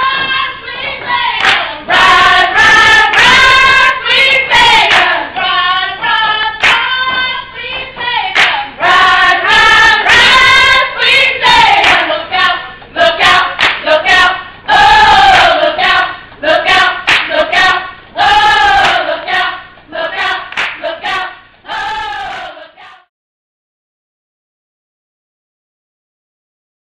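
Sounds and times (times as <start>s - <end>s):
group singing unaccompanied: 0.0s - 23.1s
hand claps: 1.4s - 1.7s, 3.1s - 3.4s, 4.8s - 5.2s, 6.6s - 8.7s, 11.8s - 12.1s, 13.5s - 13.9s, 17.0s - 17.4s, 18.8s - 19.4s, 20.5s - 20.8s.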